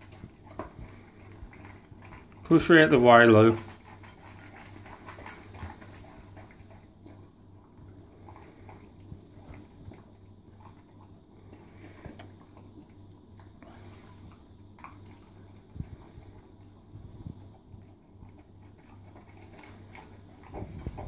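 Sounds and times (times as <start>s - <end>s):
animals chewing: 0.0s - 21.0s
low steady hum: 0.0s - 21.0s.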